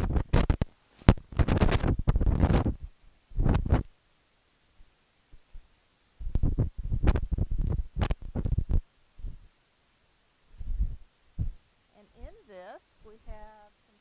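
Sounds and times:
shorting microphone crackling thumps: 0:00.0 - 0:03.9, 0:05.3 - 0:09.5, 0:10.5 - 0:11.7.

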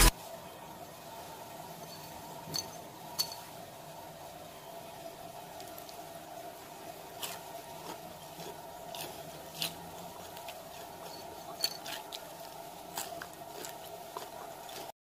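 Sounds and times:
steady low hum: 0:00.0 - 0:14.9
fried onions crunching: 0:06.9 - 0:14.9.

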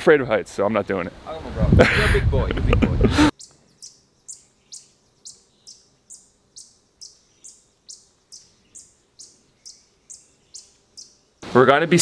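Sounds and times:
bird chirping: 0:03.3 - 0:11.5.

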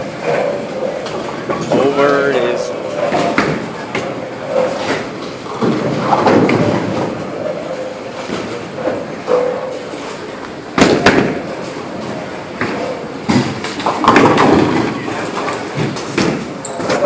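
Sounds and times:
bowling ball thud and roll: 0:03.0 - 0:17.0
bowling pins crashing: 0:03.1 - 0:07.4, 0:10.7 - 0:11.8, 0:12.6 - 0:17.0.

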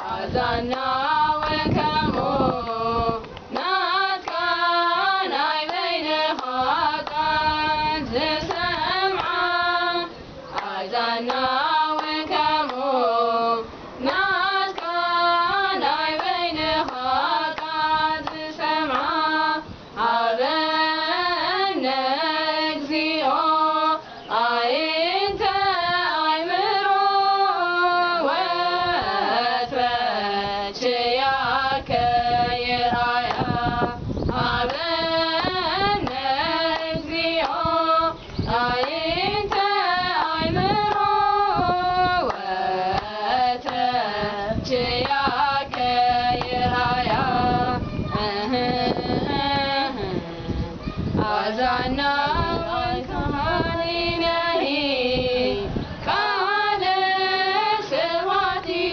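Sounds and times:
women singing a hymn: 0:00.0 - 0:58.9
hand claps: 0:00.7 - 0:02.4, 0:03.2 - 0:04.5, 0:05.6 - 0:07.2, 0:10.6 - 0:12.9, 0:14.0 - 0:15.1, 0:16.2 - 0:19.1, 0:33.2 - 0:33.6, 0:34.6 - 0:37.7, 0:38.7 - 0:41.1, 0:42.2 - 0:43.9, 0:45.0 - 0:47.2.

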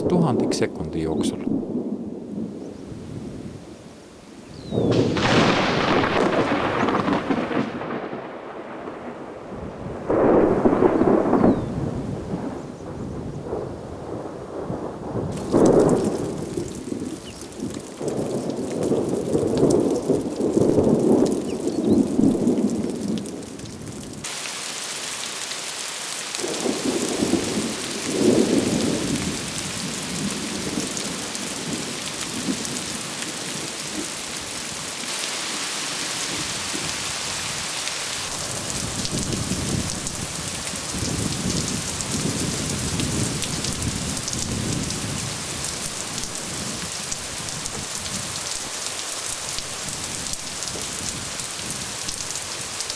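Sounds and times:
rolls of thunder: 0:00.0 - 0:02.6, 0:04.7 - 0:23.3, 0:26.4 - 0:33.0
heavy rain hissing: 0:10.1 - 0:52.9.

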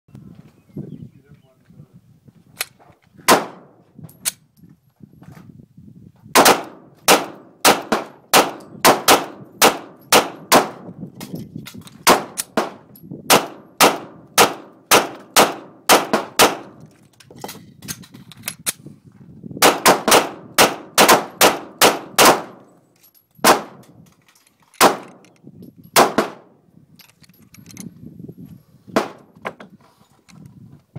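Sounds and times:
pistol shots: 0:03.3 - 0:03.7, 0:06.4 - 0:10.9, 0:12.0 - 0:16.8, 0:19.6 - 0:22.6, 0:23.4 - 0:23.8, 0:24.8 - 0:25.2, 0:26.0 - 0:26.5.

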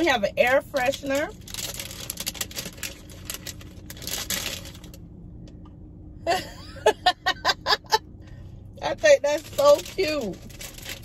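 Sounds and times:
plastic wrapper crinkling: 0:00.4 - 0:05.0, 0:09.3 - 0:11.0.

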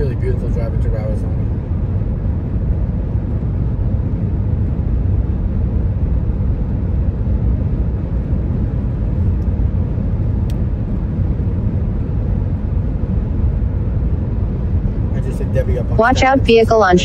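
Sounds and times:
car cabin road and engine rumble: 0:00.0 - 0:17.0.

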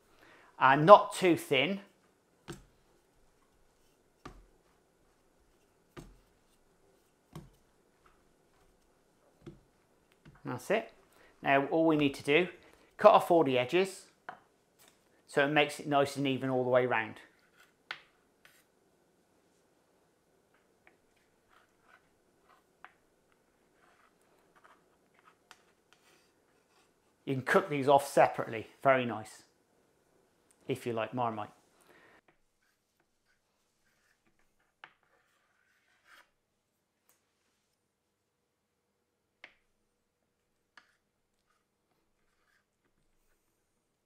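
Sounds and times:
rolling pin on pastry: 0:02.4 - 0:10.4.

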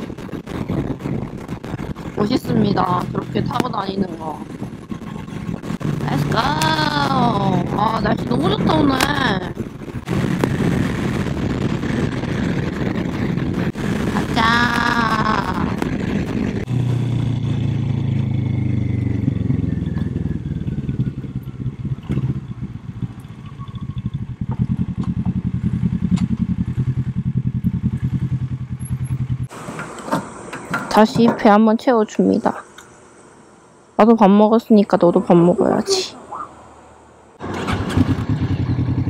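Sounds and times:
motorcycle engine running: 0:00.0 - 0:29.6, 0:37.4 - 0:39.0
wind noise: 0:00.0 - 0:29.6.

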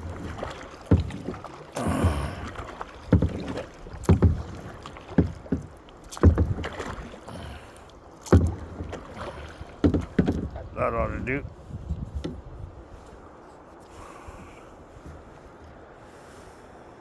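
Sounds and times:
river water rushing: 0:00.0 - 0:11.0
kayak paddle splashing: 0:00.0 - 0:16.5.

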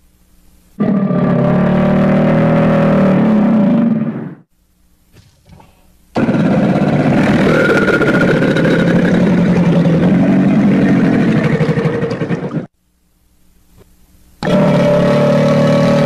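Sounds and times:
crocodile growling: 0:05.2 - 0:12.7, 0:14.4 - 0:16.0.

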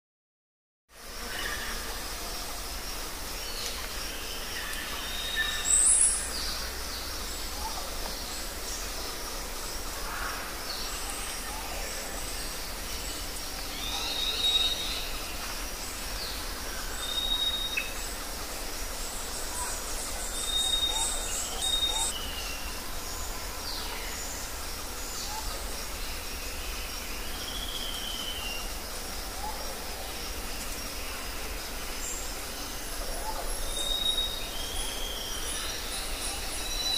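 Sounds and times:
steady background hiss: 0:00.9 - 0:36.9
bird calls and chirps: 0:19.2 - 0:22.8.

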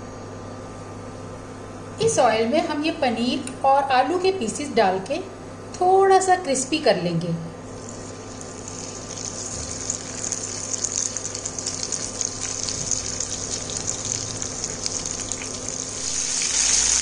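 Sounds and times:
food sizzling in hot oil: 0:07.7 - 0:17.0.

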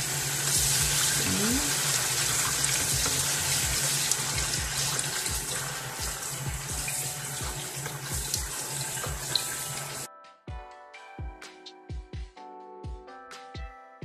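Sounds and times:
tap water running into a sink: 0:00.0 - 0:10.1
background music with steady beat: 0:00.0 - 0:14.0.

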